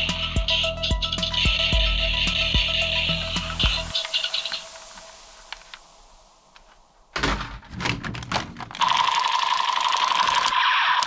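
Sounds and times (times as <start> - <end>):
background music with steady beat: 0.0 - 6.6.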